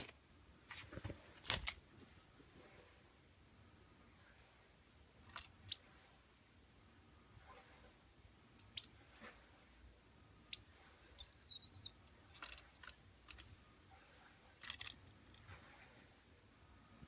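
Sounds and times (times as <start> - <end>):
sparrow chirp: 10.5 - 12.0.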